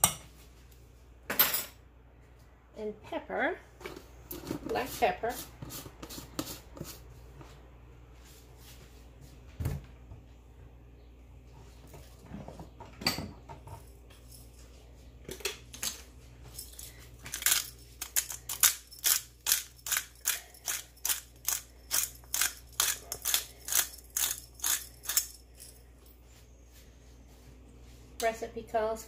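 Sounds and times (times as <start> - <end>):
pepper mill grinding: 17.3 - 25.8.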